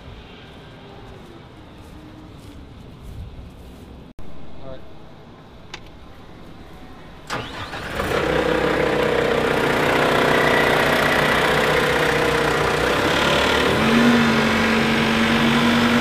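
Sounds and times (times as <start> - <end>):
diesel engine running: 7.3 - 16.0.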